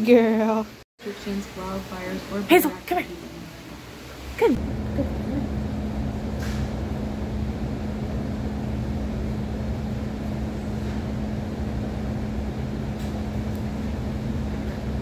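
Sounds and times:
low mechanical hum: 0.0s - 15.0s
low rumble: 4.6s - 15.0s.

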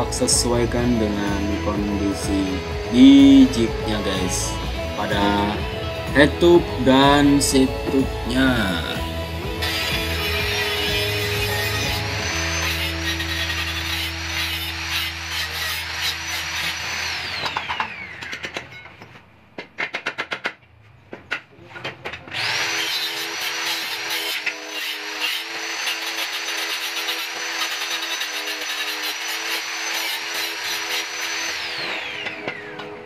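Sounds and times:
power tool cutting metal tube: 9.6s - 18.8s, 22.3s - 33.0s.

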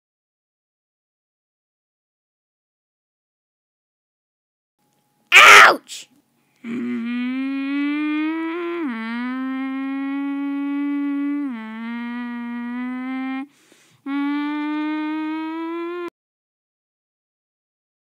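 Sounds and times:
person humming engine noise: 6.6s - 16.1s.

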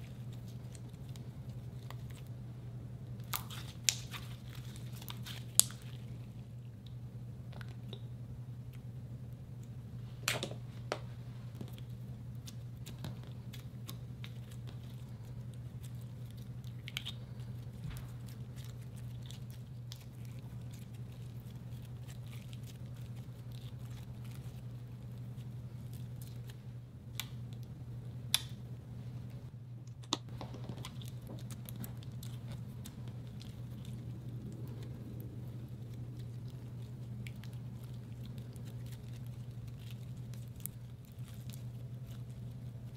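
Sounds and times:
slime squishing: 0.0s - 28.7s, 29.4s - 42.9s
steady low hum: 0.0s - 42.9s.

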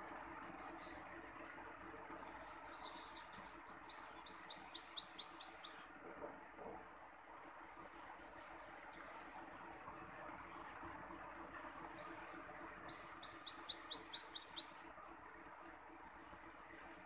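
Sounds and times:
warbler singing: 2.2s - 5.9s, 7.7s - 9.5s, 12.9s - 14.8s.

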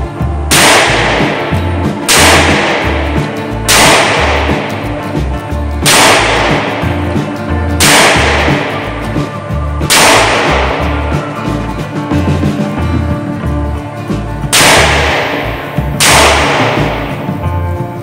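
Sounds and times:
background music with bass line: 0.0s - 18.0s
revolver shots echoing: 0.5s - 11.3s, 14.5s - 17.5s.

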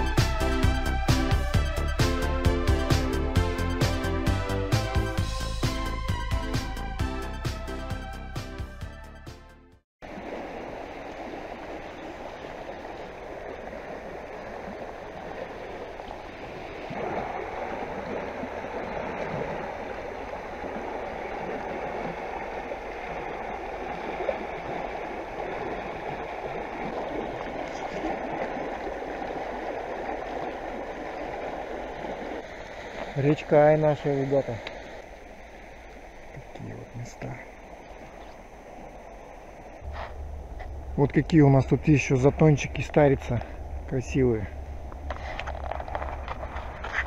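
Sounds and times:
river rushing over stones: 10.0s - 39.9s.

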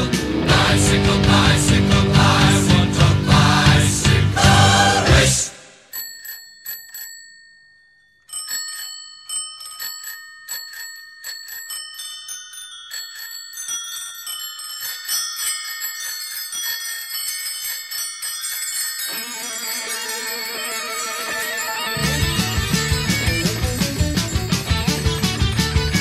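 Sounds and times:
rock band with guitar: 0.0s - 5.4s, 21.8s - 26.0s
bicycle bells ringing: 5.8s - 26.0s.

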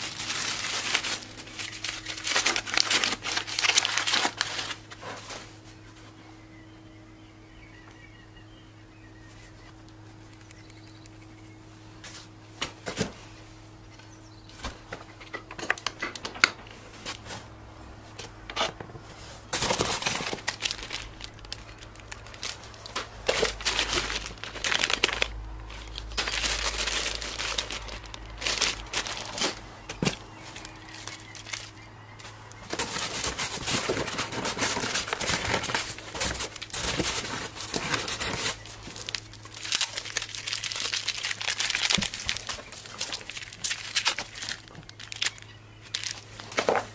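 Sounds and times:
plastic bags crinkling: 0.0s - 5.6s, 19.4s - 46.9s
faint steady hum: 0.0s - 46.9s
small parts clicking: 20.1s - 29.6s.

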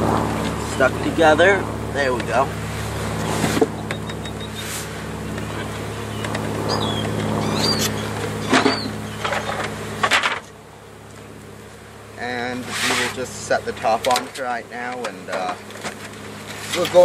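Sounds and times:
steady low hum: 0.0s - 17.0s
bird chirps: 3.7s - 4.7s, 5.6s - 10.0s.

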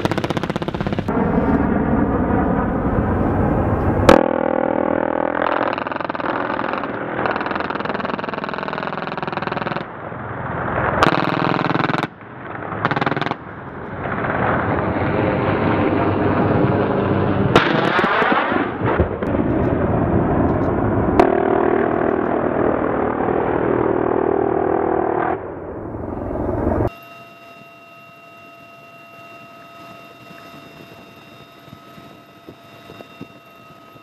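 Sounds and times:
machine gun firing rapid bursts: 0.0s - 1.1s, 5.3s - 9.9s, 11.0s - 12.1s, 12.8s - 13.5s.

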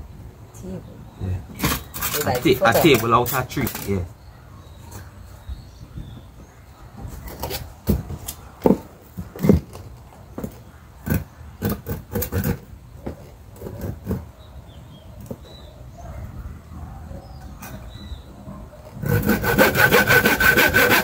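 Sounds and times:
hand saw cutting log: 19.0s - 21.0s.

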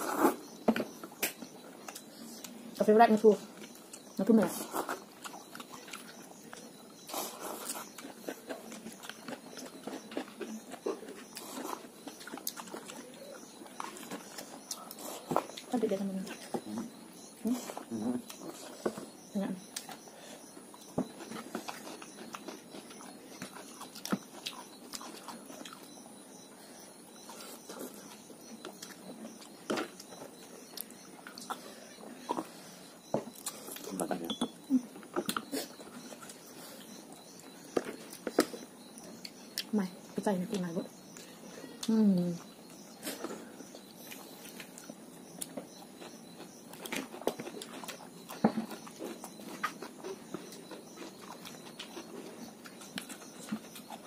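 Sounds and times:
chewing and lip smacking: 3.5s - 15.7s, 16.3s - 34.0s, 34.6s - 40.2s, 41.0s - 54.0s
chewing and slurping noodles: 3.5s - 15.7s.

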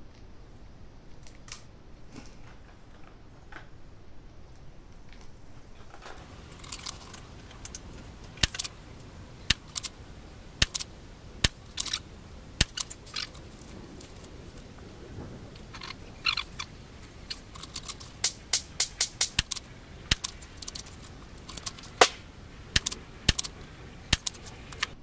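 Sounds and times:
rifle mechanism clicking: 6.4s - 8.8s, 9.5s - 10.0s, 10.6s - 12.0s, 12.6s - 14.3s, 17.3s - 22.2s, 22.8s - 25.0s.

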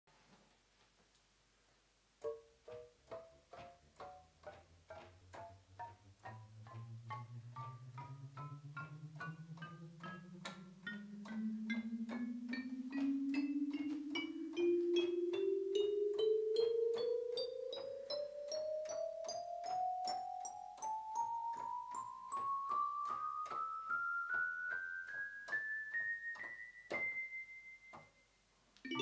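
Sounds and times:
synthesizer playing rising scale: 5.6s - 16.8s.

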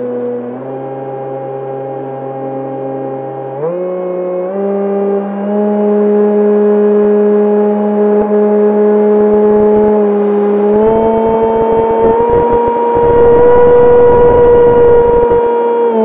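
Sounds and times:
electric motor and propeller drone: 8.9s - 16.0s
wind buffeting microphone: 10.8s - 15.4s.

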